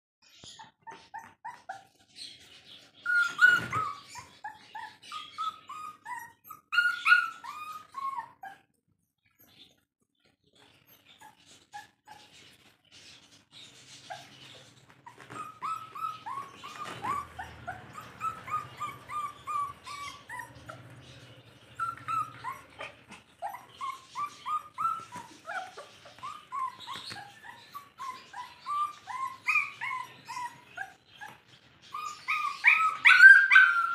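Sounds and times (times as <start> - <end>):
puppies crying: 0.4 - 8.7, 10.7 - 12.7, 13.9 - 33.9.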